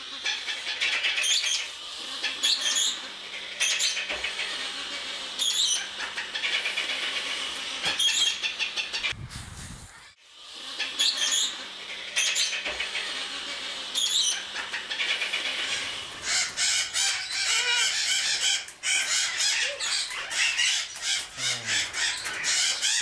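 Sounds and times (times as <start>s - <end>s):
parrots squealing and squawking: 0.0s - 9.2s, 9.9s - 23.0s.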